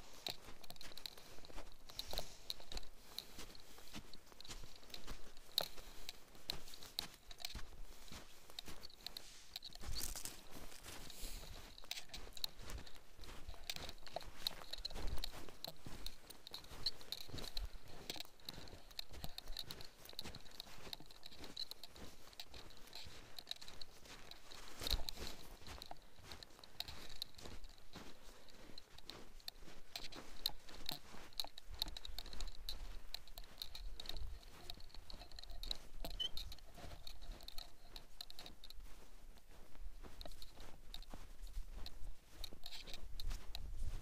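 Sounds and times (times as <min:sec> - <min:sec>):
footsteps crunching through snow: 0:00.0 - 0:44.0.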